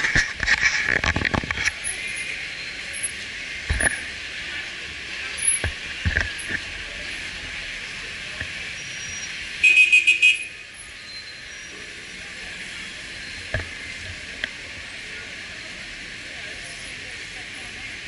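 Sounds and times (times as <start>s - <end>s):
street traffic passing: 0.0s - 18.0s.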